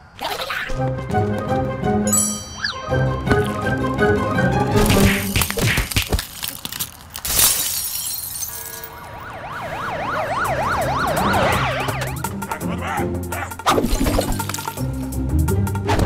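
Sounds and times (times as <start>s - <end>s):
background music: 0.8s - 6.0s, 10.2s - 16.0s
wailing alarm siren: 2.6s - 4.8s, 8.8s - 13.7s
cartoon glass shattering: 4.8s - 9.0s, 13.8s - 15.0s.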